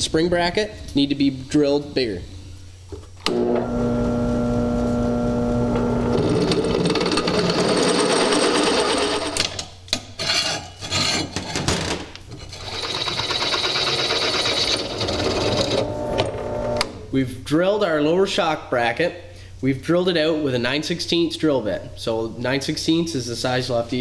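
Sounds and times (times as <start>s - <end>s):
drill press motor hum: 3.2s - 9.4s, 12.6s - 17.0s.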